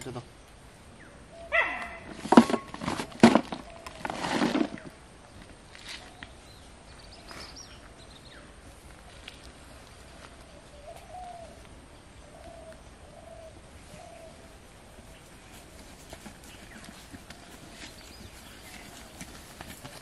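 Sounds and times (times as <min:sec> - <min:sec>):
low repeated bird notes: 0:09.9 - 0:20.0.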